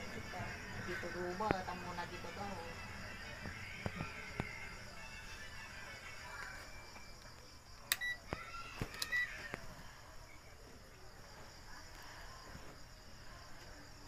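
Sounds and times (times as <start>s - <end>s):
crickets chirring: 0.0s - 14.0s
multimeter beeps: 7.9s - 8.2s, 9.0s - 9.3s.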